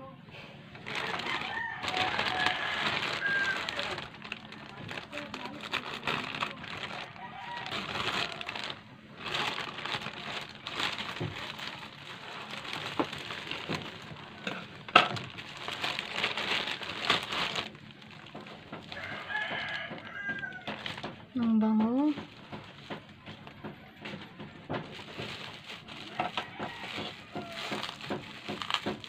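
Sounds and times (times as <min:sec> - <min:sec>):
plastic bag crinkling: 0:00.7 - 0:29.0
rooster crowing: 0:01.0 - 0:04.0, 0:07.0 - 0:08.8, 0:18.8 - 0:21.0, 0:26.0 - 0:28.2.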